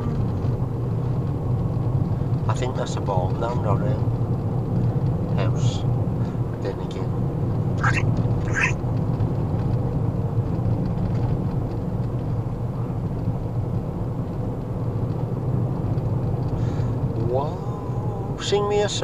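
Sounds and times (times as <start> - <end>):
road and engine drone in cab: 0.0 - 19.0.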